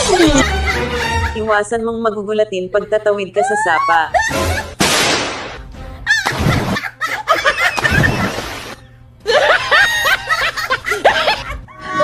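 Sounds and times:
person yelping: 0:03.4 - 0:04.7
water splashing: 0:07.8 - 0:08.8.

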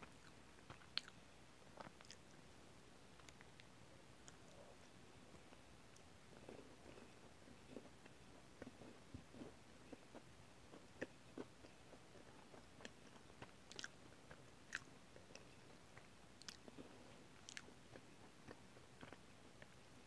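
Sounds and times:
person chewing: 0:00.1 - 0:01.2, 0:08.6 - 0:19.7.

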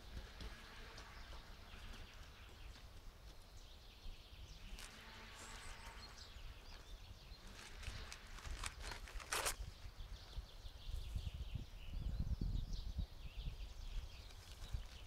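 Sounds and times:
short sharp rustle: 0:07.4 - 0:09.6.

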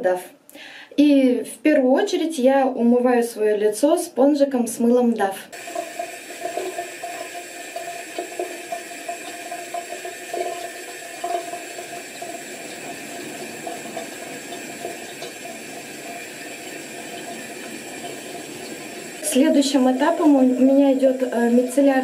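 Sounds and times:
tap water running into sink: 0:05.6 - 0:22.0.

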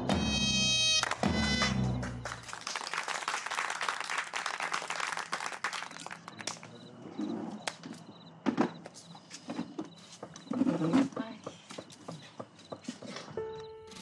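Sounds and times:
small group applauding: 0:00.9 - 0:07.0.

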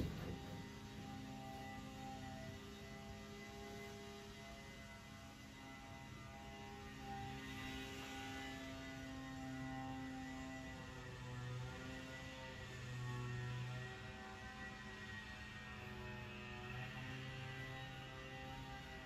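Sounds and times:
steady low hum: 0:00.0 - 0:02.2
droning synth notes: 0:00.0 - 0:04.6.

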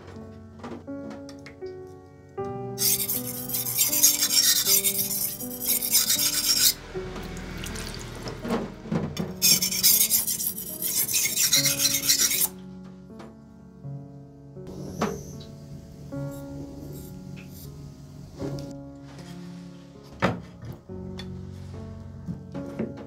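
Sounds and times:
blade scraping on whetstone: 0:02.8 - 0:06.8, 0:09.4 - 0:12.5, 0:16.3 - 0:17.8.

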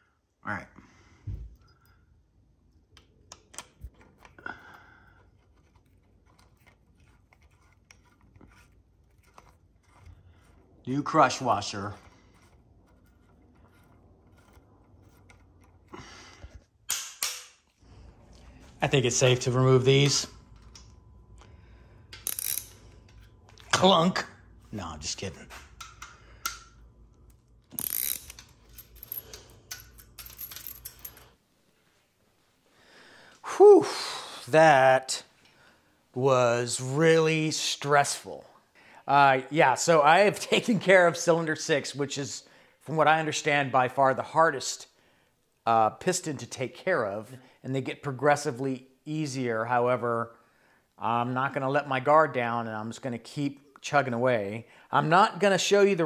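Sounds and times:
ratchet clicking: 0:22.1 - 0:23.2, 0:27.7 - 0:30.8.

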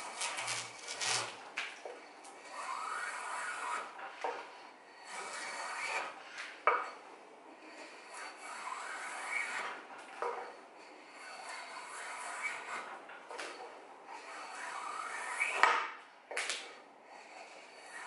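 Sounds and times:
drawknife scraping wood: 0:00.0 - 0:01.4, 0:02.4 - 0:04.4, 0:05.0 - 0:07.0, 0:07.6 - 0:13.6, 0:14.2 - 0:15.9.

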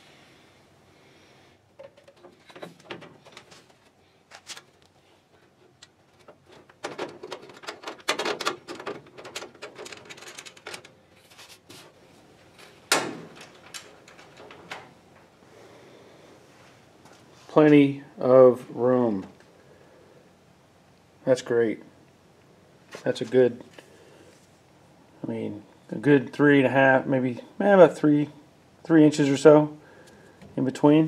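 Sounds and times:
clatter and scraping: 0:01.8 - 0:04.7, 0:05.3 - 0:12.0
clicks and knocks: 0:12.9 - 0:15.3.

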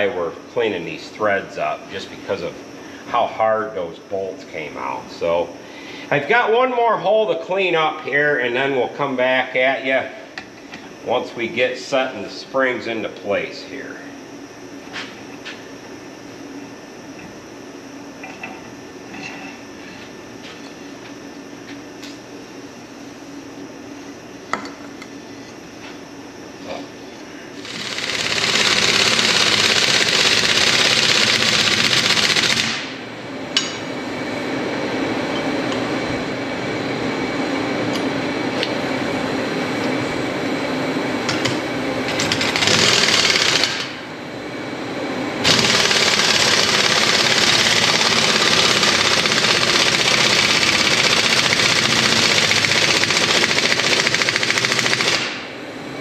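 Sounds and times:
pneumatic impact wrench rattling: 0:27.6 - 0:32.9, 0:42.1 - 0:44.0, 0:45.4 - 0:55.4.

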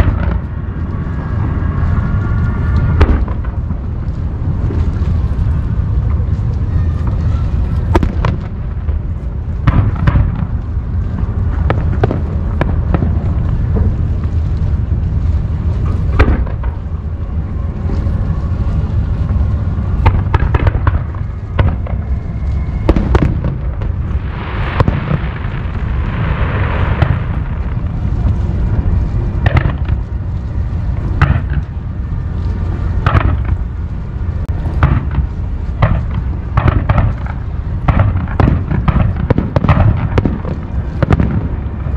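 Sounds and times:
sharp firework bangs: 0:00.0 - 0:00.8, 0:02.8 - 0:03.8, 0:07.7 - 0:10.6, 0:15.8 - 0:17.0, 0:20.0 - 0:30.2, 0:31.0 - 0:31.8, 0:32.9 - 0:33.7, 0:34.5 - 0:41.9
deep rumble of firework bursts: 0:00.0 - 0:41.9
hissing crackle: 0:00.0 - 0:41.9.

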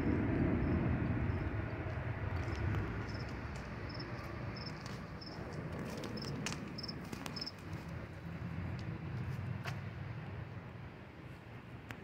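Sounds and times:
cricket chirping: 0:00.0 - 0:05.4, 0:06.2 - 0:07.6
low background rumble: 0:00.0 - 0:12.0.

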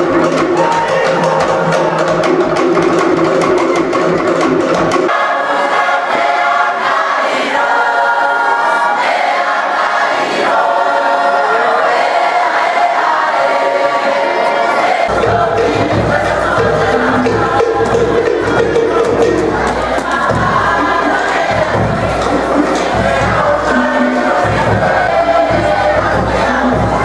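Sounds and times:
choir singing: 0:00.0 - 0:04.4, 0:05.0 - 0:27.0
wooden slit-drum beats: 0:00.0 - 0:06.5, 0:15.0 - 0:27.0.

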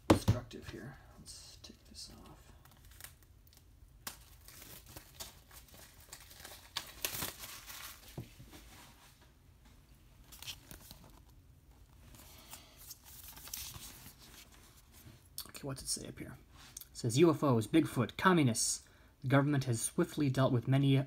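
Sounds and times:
plastic wrap crinkling and tearing: 0:02.3 - 0:08.2.

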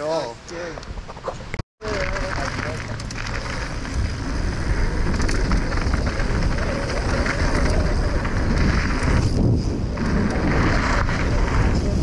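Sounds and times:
bike rattles and knocks: 0:01.8 - 0:12.0
bike tyres rolling on dirt: 0:01.8 - 0:12.0
wind on camera microphone: 0:03.3 - 0:12.0.

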